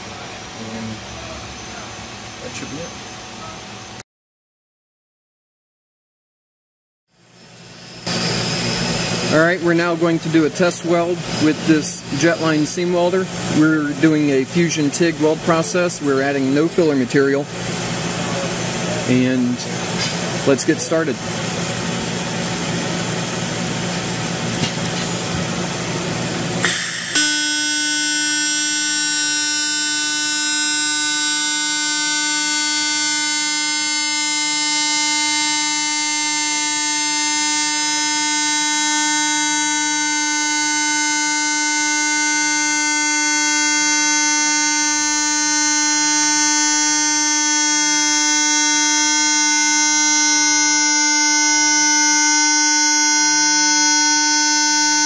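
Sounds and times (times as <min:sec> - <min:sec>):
high-pitched electric buzz: 0:07.2 - 0:19.7, 0:26.6 - 0:55.0.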